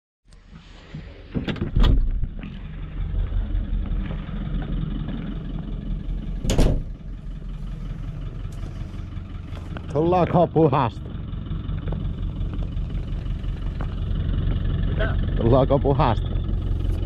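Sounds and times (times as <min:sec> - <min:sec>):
vehicle engine running: 0:02.1 - 0:17.0.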